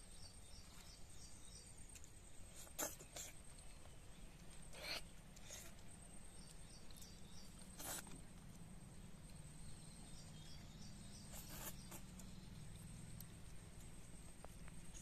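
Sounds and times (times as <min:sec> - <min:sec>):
faint chirping: 0:00.0 - 0:15.0
slurping fruit: 0:02.5 - 0:03.4, 0:07.6 - 0:08.3, 0:11.1 - 0:12.4.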